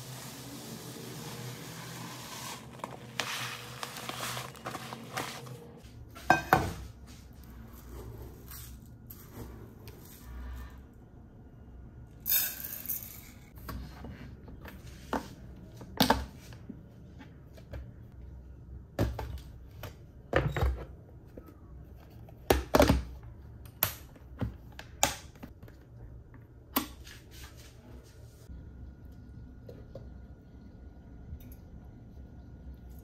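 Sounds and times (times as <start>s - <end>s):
dry rice poured: 0.0s - 5.4s.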